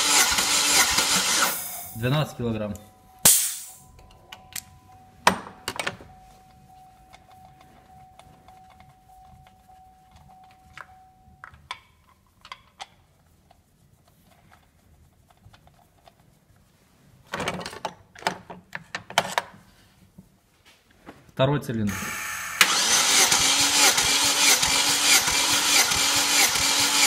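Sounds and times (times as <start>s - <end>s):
faint steady whine: 1.6s - 12.4s
rustle and clatter: 5.8s - 21.3s.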